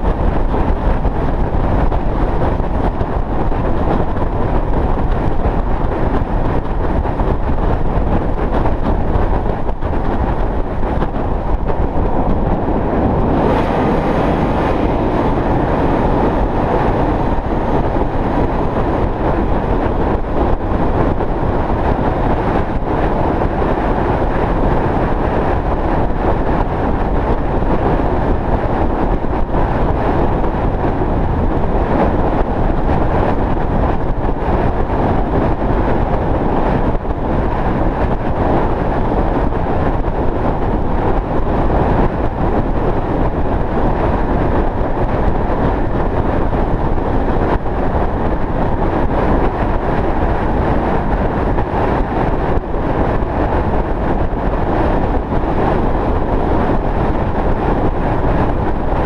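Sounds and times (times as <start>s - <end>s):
vehicle road and wind noise: 0.0s - 59.0s.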